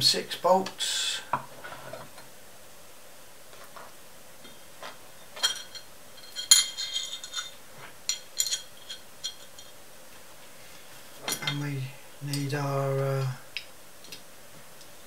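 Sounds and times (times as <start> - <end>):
metal parts clinking and knocking: 5.4 - 9.8.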